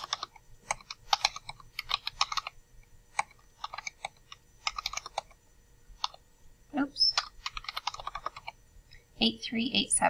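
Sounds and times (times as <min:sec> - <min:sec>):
keyboard keys tapping: 0:00.0 - 0:02.6, 0:03.2 - 0:05.4, 0:07.0 - 0:08.6.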